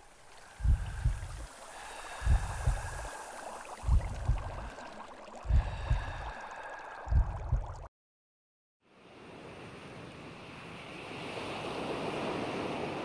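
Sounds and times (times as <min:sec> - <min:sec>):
underwater bubbling: 0:00.0 - 0:07.9
deep double thumps: 0:00.6 - 0:01.5, 0:02.2 - 0:03.1, 0:03.8 - 0:04.8, 0:07.0 - 0:07.9.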